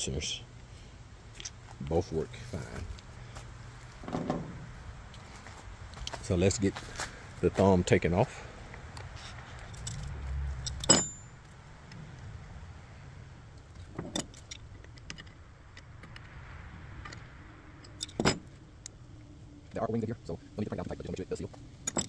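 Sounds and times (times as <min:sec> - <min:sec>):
metallic clicks and clinks: 0:09.6 - 0:11.3, 0:17.8 - 0:18.5.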